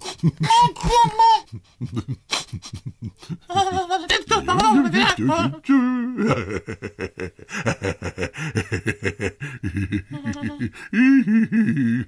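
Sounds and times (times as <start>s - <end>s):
man snickering: 1.5s - 3.5s, 6.1s - 12.0s.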